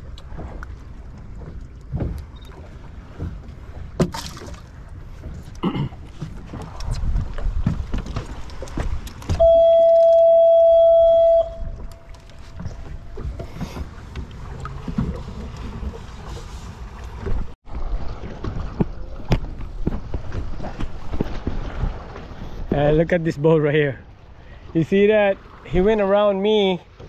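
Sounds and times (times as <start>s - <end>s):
low rumbling: 8.9s - 22.1s
horn steady high tone: 9.4s - 12.6s.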